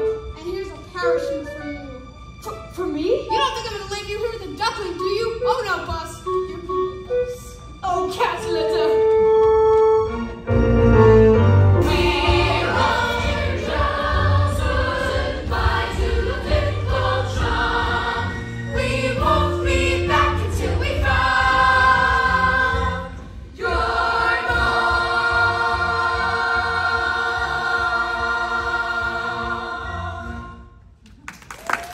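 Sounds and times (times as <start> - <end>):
instrumental accompaniment: 0.0 - 31.0
group singing: 11.8 - 30.7.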